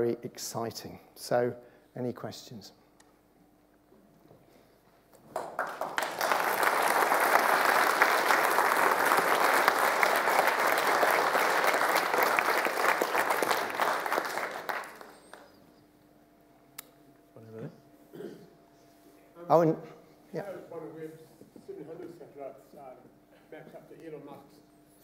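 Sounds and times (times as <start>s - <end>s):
audience applauding: 5.2s - 15.6s.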